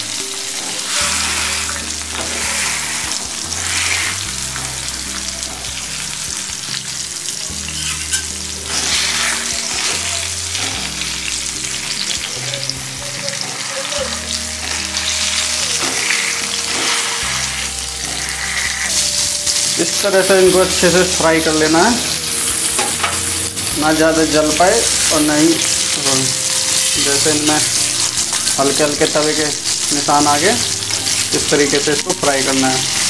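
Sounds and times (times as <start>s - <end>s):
vegetables sizzling in oil: 0.0s - 33.0s
steel spatula scraping pan: 0.5s - 4.8s, 7.7s - 10.9s, 13.3s - 19.7s.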